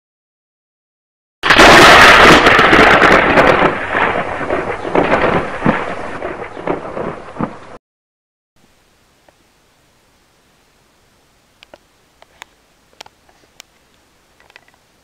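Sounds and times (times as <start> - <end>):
crash of noise with crackles: 1.4 - 7.8.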